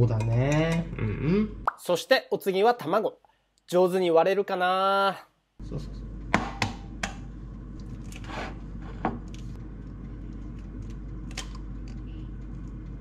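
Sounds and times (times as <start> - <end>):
low steady hum: 5.6 - 13.0
egg tapping and cracking: 6.3 - 8.0.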